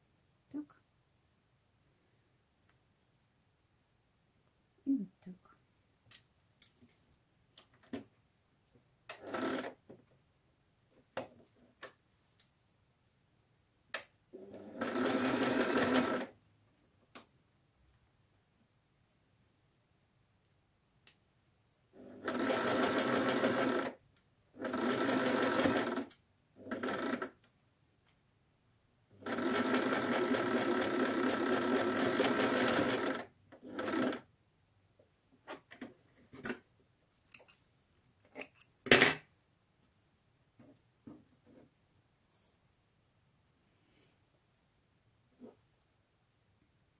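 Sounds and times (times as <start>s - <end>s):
sewing machine stitching: 9.1s - 9.8s, 14.4s - 16.3s, 22.0s - 24.0s, 24.6s - 27.4s, 29.2s - 34.3s.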